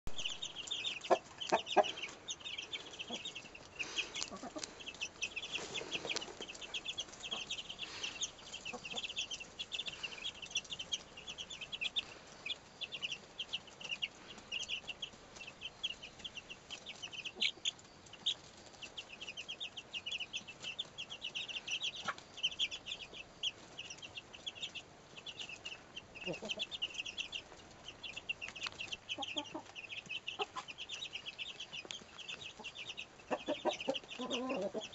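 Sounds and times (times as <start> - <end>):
chicks peeping: 0.1 - 34.9
hen clucking low: 33.3 - 34.9.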